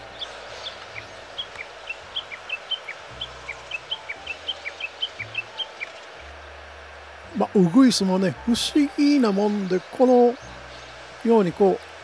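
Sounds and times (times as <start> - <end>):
bird sharp chat calls: 0.1 - 6.0.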